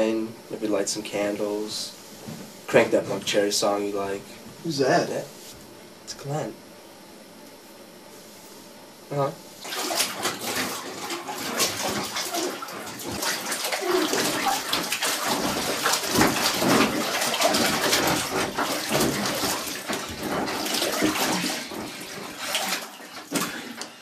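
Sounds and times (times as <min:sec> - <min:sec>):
water sloshing in a bathtub: 0:09.6 - 0:24.0.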